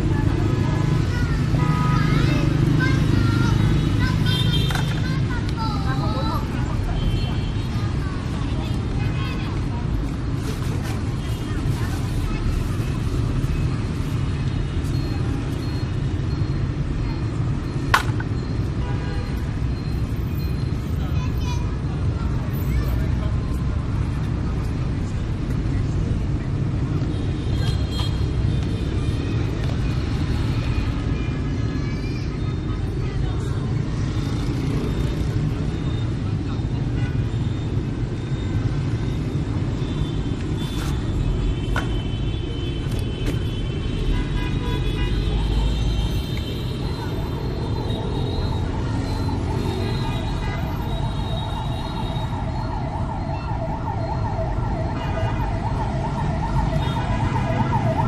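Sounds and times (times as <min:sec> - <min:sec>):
street traffic rumble: 0:00.0 - 0:58.0
emergency vehicle siren: 0:45.3 - 0:58.0.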